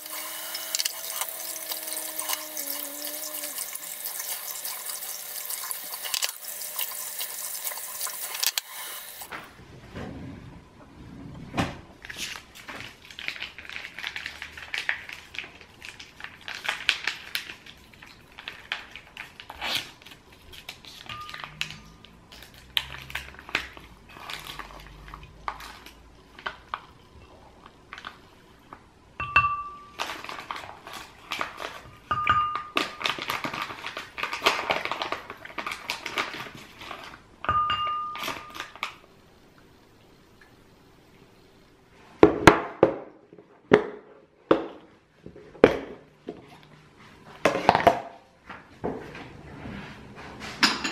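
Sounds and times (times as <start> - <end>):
foil pouch crinkling: 12.1 - 21.6, 30.0 - 31.9, 32.8 - 37.2.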